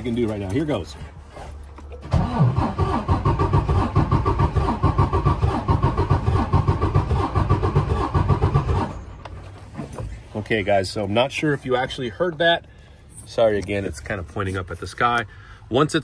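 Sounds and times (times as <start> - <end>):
diesel engine cranking on starter: 1.9 - 9.2.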